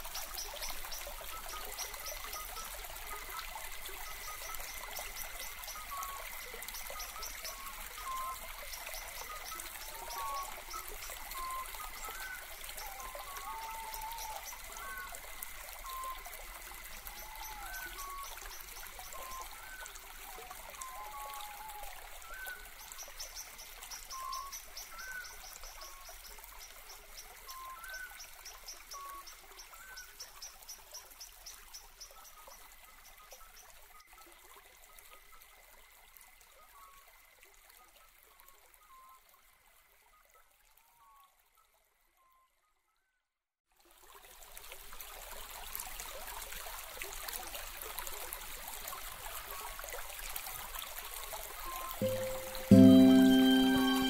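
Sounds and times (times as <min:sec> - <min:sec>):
running water: 0:00.0 - 0:36.5, 0:43.8 - 0:54.0
bird chirping: 0:52.0 - 0:54.0.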